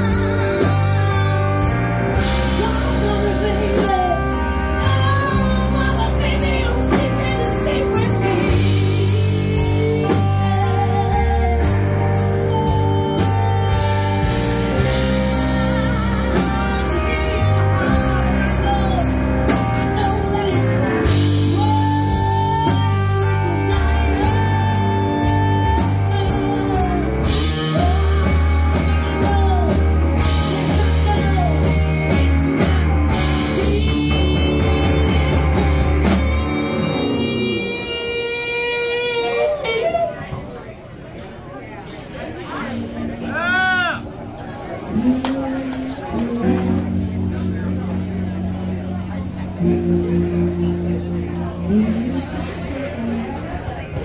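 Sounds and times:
drum kit: 0.0 - 38.6
electric guitar: 0.0 - 40.6, 42.7 - 54.0
woman singing into microphone: 0.0 - 40.6, 44.9 - 47.5, 49.6 - 54.0
bass guitar: 0.0 - 40.8, 42.3 - 54.0
keyboard: 0.0 - 54.0.

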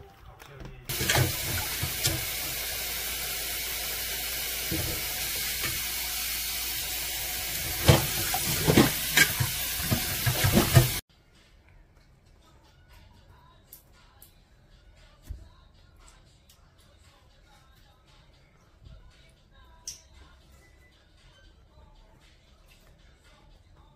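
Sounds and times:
water splashes: 0.9 - 11.0
wet sponges squelching: 0.9 - 11.0.

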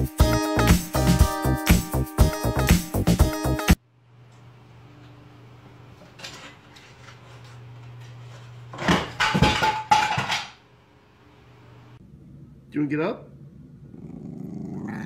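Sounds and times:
lamp crashing to floor: 8.7 - 10.6
low steady hum: 10.8 - 15.0.

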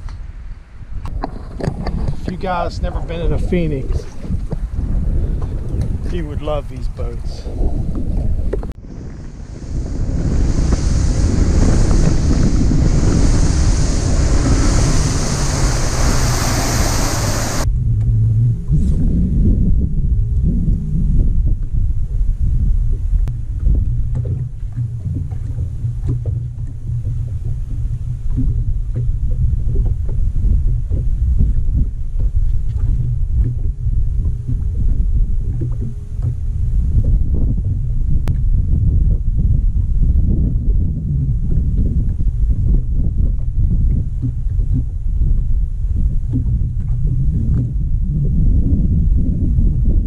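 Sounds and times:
wind buffeting microphone: 0.0 - 50.0
water rushing against boat hull: 1.0 - 17.7, 23.3 - 40.1, 40.7 - 50.0
faint steady hum: 8.8 - 18.2.

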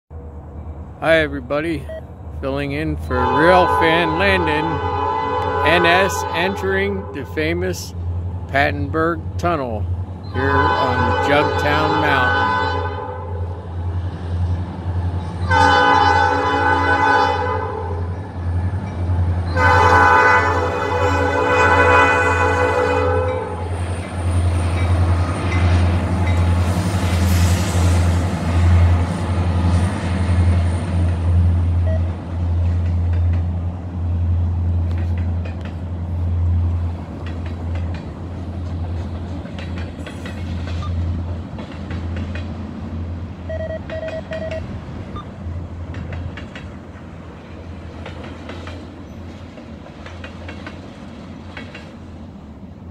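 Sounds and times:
freight cars rumbling: 0.1 - 52.9
train horn: 3.1 - 7.3, 10.3 - 13.5, 15.4 - 18.1, 19.5 - 23.6
train wheel clicks: 34.8 - 35.9, 36.6 - 42.6, 43.6 - 47.1, 47.8 - 52.0.

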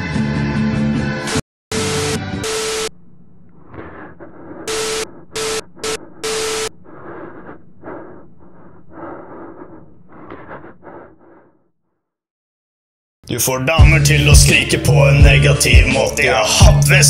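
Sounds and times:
electronic static bursts with hum: 1.7 - 3.0, 3.8 - 6.8.

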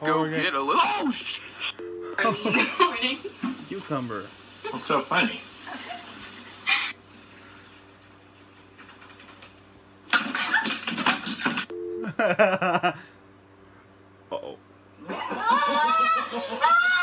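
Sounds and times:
man laughing hard: 12.0 - 13.1.

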